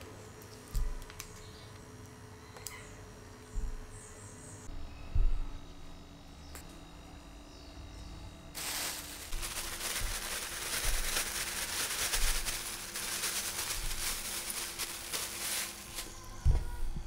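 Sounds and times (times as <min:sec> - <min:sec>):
crumbs pouring into glass bowl: 0:08.6 - 0:15.8
plastic bag rustling: 0:08.6 - 0:16.4.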